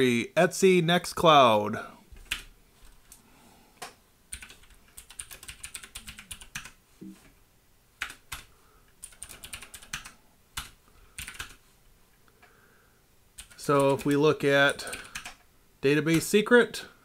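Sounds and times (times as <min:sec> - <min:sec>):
typing on computer keyboard: 0:04.3 - 0:06.8, 0:08.0 - 0:11.6, 0:13.4 - 0:15.4.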